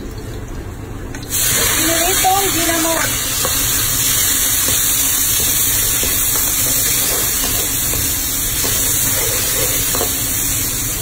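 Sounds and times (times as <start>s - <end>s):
tomatoes sizzling in hot oil: 1.3s - 11.0s.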